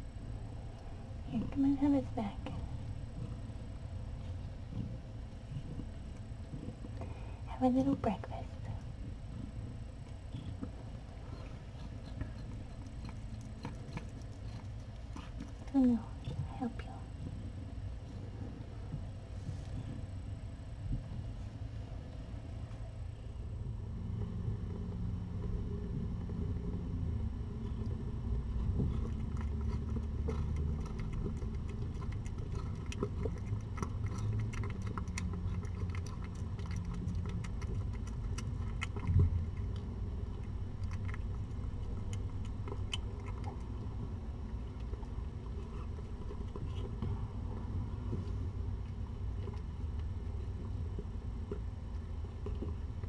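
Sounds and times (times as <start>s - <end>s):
steady low rumble: 0.0s - 53.0s
cat chewing wet food: 8.4s - 20.2s, 23.6s - 53.0s.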